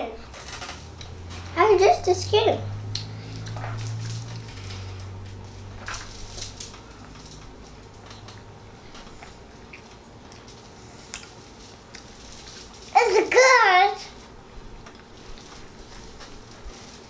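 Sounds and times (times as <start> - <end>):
children chewing and handling food: 0.0 - 17.0
low room hum: 0.0 - 17.0.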